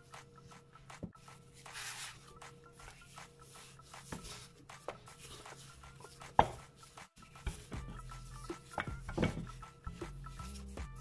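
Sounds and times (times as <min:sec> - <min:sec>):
handling dough on wooden board: 0:00.0 - 0:11.0
rolling pin knocking on board: 0:08.6 - 0:09.5.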